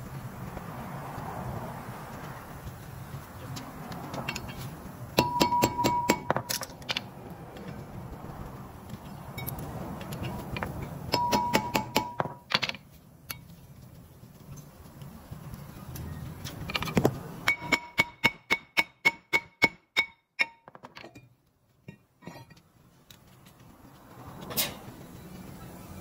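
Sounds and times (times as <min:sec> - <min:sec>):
metallic knocks on brake rotor: 0:05.2 - 0:07.1, 0:10.6 - 0:12.8, 0:16.8 - 0:21.2.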